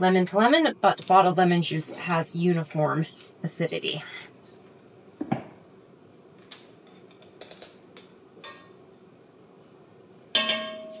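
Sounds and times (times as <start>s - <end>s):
loud ringing clink: 10.4s - 11.0s
metal spoon clinking glass jars: 10.4s - 11.0s.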